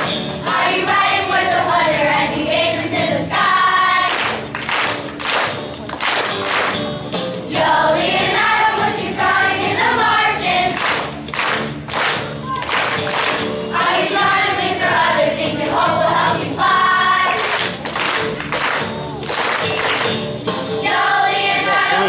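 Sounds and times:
hand claps: 0.0s - 0.4s, 4.1s - 6.9s, 10.8s - 13.6s, 17.2s - 20.4s
children's choir singing: 0.0s - 4.4s, 7.5s - 11.1s, 13.6s - 17.8s, 20.8s - 22.0s.

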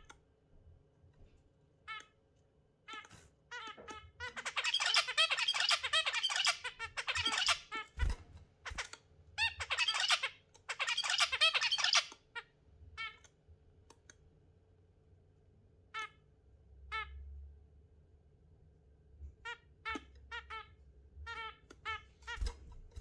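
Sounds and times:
budgerigar chirping: 4.2s - 7.9s, 9.4s - 12.2s.

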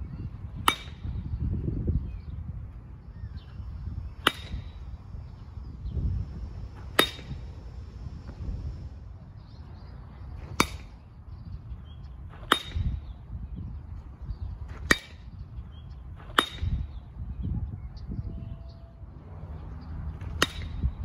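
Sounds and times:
baseball bat cracking balls: 0.6s - 1.3s, 4.2s - 5.0s, 6.6s - 7.8s, 10.4s - 11.1s, 12.3s - 13.1s, 14.7s - 15.3s, 16.1s - 17.0s, 20.2s - 20.9s
ringing ping of bat: 0.7s - 1.1s.

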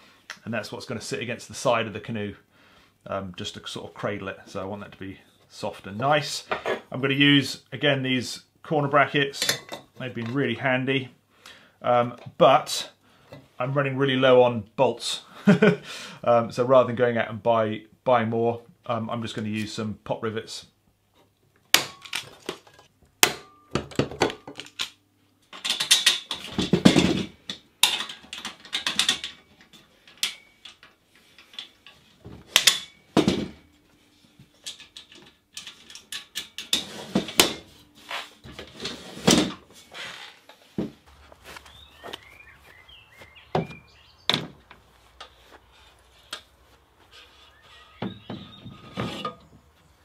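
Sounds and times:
birds chirping: 41.1s - 45.4s, 47.0s - 50.0s.

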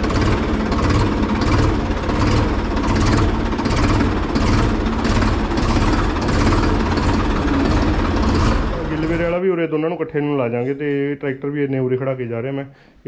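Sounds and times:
tractor diesel engine running: 0.0s - 9.4s.

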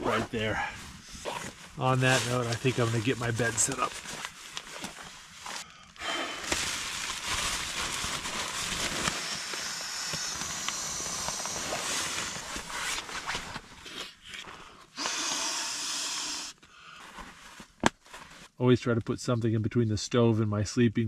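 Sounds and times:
nylon bag crinkling: 1.4s - 14.2s.

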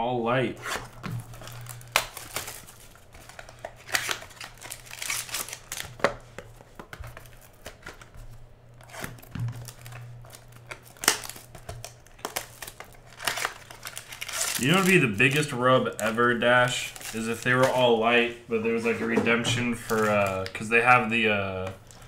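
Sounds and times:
plastic shrink-wrap crinkling: 0.8s - 18.0s, 19.6s - 22.0s.

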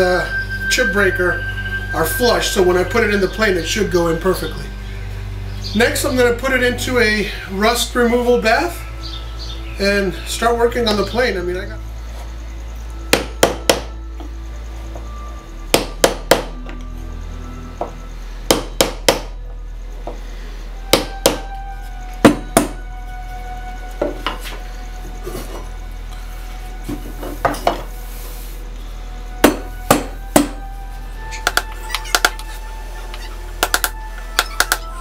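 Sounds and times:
soft background music: 0.0s - 35.0s
hammer striking chisel: 13.1s - 13.9s, 15.7s - 16.7s, 18.5s - 19.4s, 20.9s - 21.5s, 22.2s - 22.8s, 29.4s - 30.6s, 33.6s - 34.9s.

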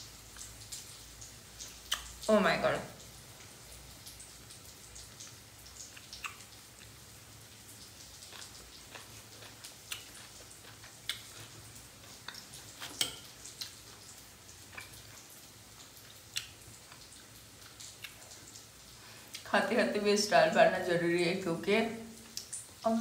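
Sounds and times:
chewing and mouth clicks: 1.6s - 2.1s, 5.2s - 7.0s, 8.0s - 14.1s, 14.7s - 18.6s, 22.2s - 22.6s
fork clicking against plate: 12.8s - 13.3s.

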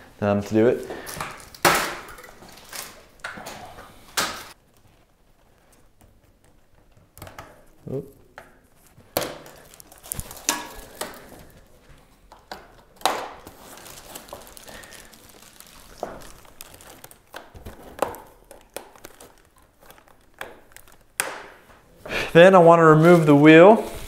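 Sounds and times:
plastic wrap crinkling: 0.4s - 3.3s, 7.6s - 21.7s.

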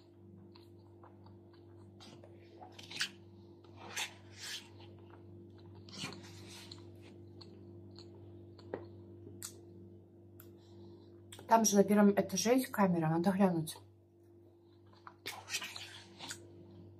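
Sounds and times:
person chewing: 0.0s - 9.7s, 14.6s - 16.5s
steady low hum: 0.0s - 16.9s
plastic spoon scraping salad: 2.0s - 5.0s, 5.7s - 7.2s, 15.3s - 16.4s.

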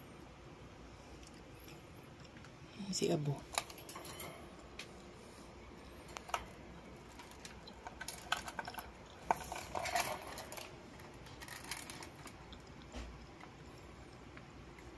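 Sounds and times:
birds clicking on wire cage: 6.0s - 13.4s.

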